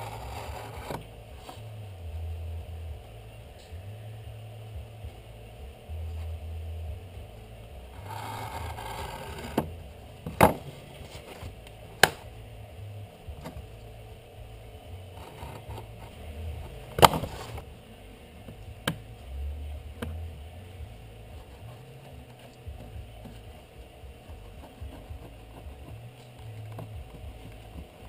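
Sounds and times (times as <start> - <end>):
utility knife scraping along ruler: 0.0 - 1.6, 8.0 - 9.6.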